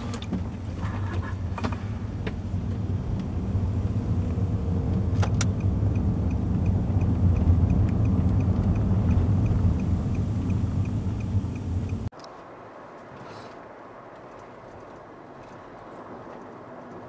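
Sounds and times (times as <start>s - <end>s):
turn signal ticking: 0.0s - 12.1s
car engine and road rumble: 0.0s - 17.0s.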